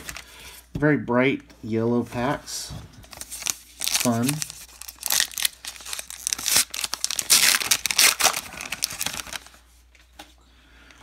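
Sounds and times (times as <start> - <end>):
wrapper ripping and crinkling: 3.1 - 9.6.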